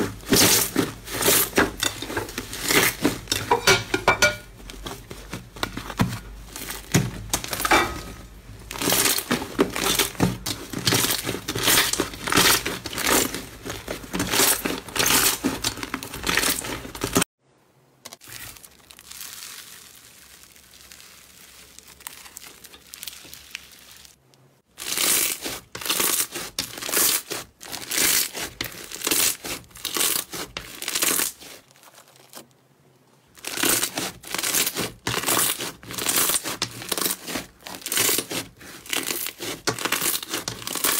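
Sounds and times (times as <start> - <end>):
hands squishing slime: 0.0 - 3.4, 8.6 - 17.2, 18.2 - 24.1, 24.8 - 32.4, 33.4 - 40.9
slime stretching softly: 18.1 - 24.3.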